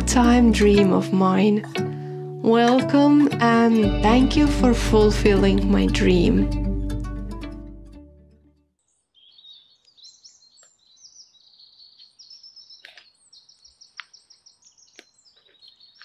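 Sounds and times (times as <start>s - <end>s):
soft music: 0.0s - 8.7s
songbirds singing: 8.8s - 16.0s.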